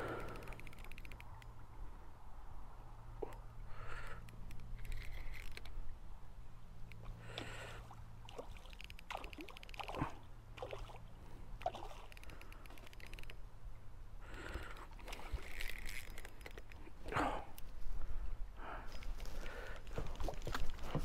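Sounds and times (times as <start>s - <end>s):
fishing reel ticking: 0.0s - 1.6s, 3.9s - 5.8s, 8.3s - 10.0s, 11.6s - 13.4s, 14.5s - 16.8s.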